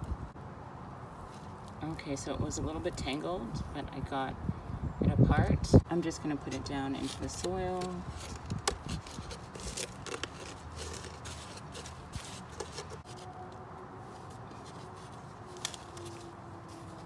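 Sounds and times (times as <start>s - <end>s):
hands scraping potting soil: 6.0s - 13.4s.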